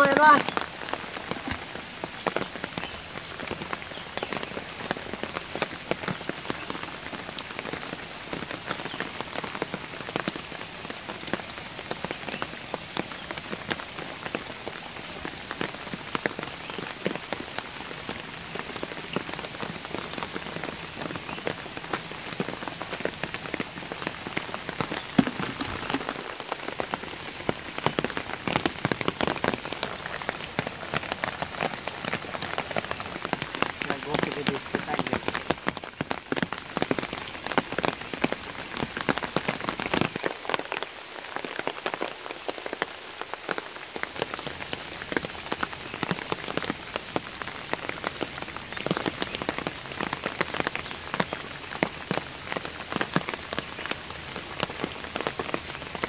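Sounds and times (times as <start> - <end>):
rain falling on puddles: 0.0 - 56.0.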